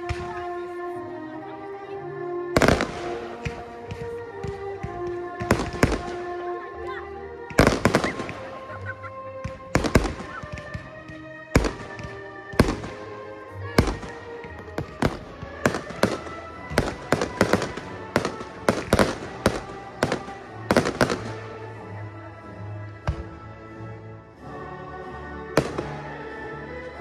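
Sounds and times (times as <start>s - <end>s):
fireworks bursting with bangs: 2.6s - 6.5s, 7.4s - 21.8s, 25.6s - 26.2s.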